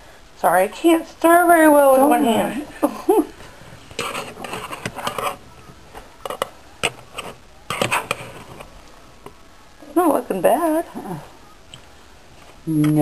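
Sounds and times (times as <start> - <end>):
utensil scraping meat in pan: 3.9 - 8.7.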